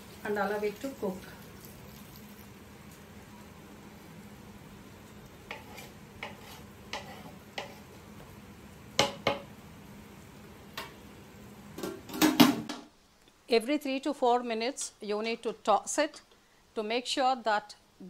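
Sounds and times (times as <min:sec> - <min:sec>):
spoon knocking and scraping pot: 0:05.5 - 0:07.9, 0:09.0 - 0:09.5.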